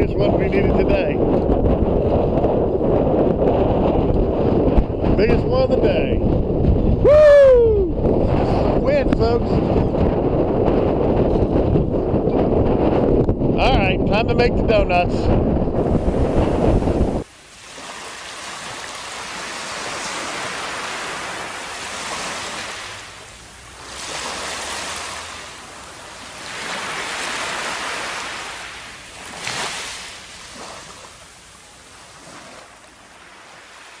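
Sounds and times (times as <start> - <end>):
surf washing over sand: 0.0 - 34.0
wind buffeting microphone: 0.0 - 34.0.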